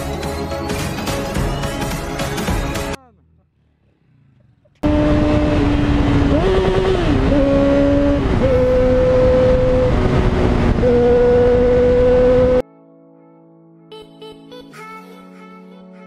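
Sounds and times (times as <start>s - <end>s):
motorcycle engine at high revs: 3.8s - 12.6s
wind noise on microphone: 5.1s - 12.6s.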